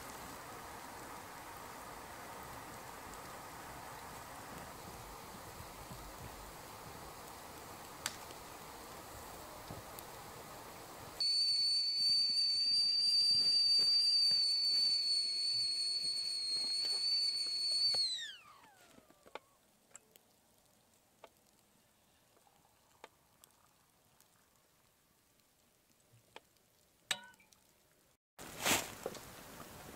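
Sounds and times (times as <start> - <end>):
fire ticking: 0.0 - 10.6, 19.3 - 21.7
kettle whistling: 11.2 - 19.4.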